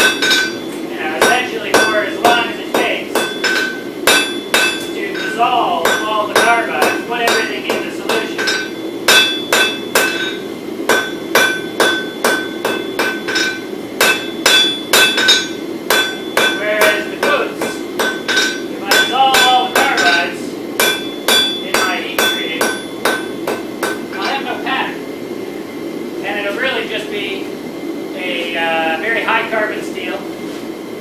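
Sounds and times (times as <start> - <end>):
hammer blows on anvil: 0.0 - 24.5.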